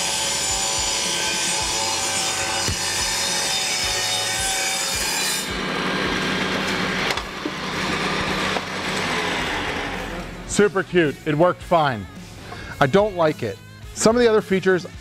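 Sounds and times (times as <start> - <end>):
table saw cutting wood: 0.0 - 11.3.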